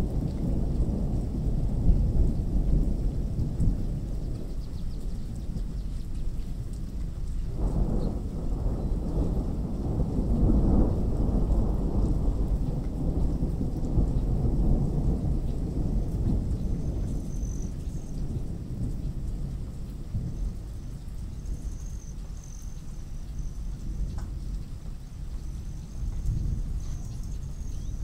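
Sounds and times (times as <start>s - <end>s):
rain: 0.0s - 28.0s
thunder rumbling: 0.0s - 28.0s.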